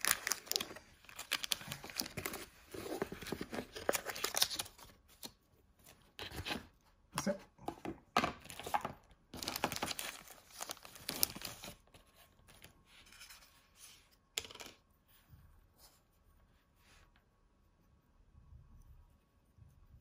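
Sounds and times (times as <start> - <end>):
plastic bag crinkling: 0.0 - 2.5.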